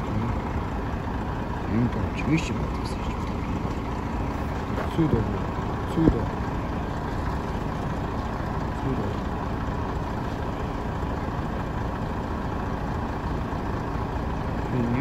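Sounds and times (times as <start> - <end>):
bus engine idling: 0.0 - 15.0.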